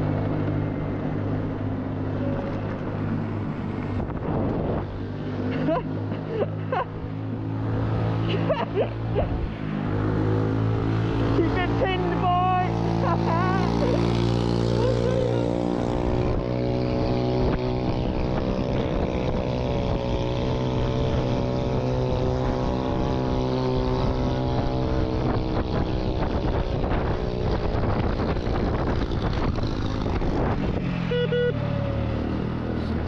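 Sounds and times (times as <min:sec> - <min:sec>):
small motorbike engine: 0:00.0 - 0:33.0
wind on microphone: 0:03.1 - 0:05.2, 0:14.6 - 0:31.0.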